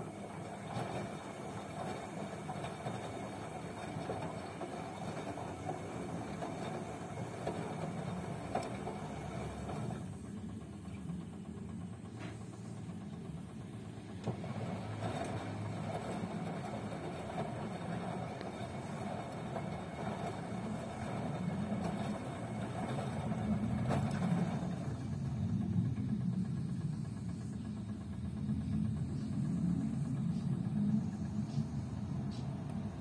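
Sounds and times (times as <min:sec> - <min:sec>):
washing machine motor and drum: 0:00.0 - 0:33.0.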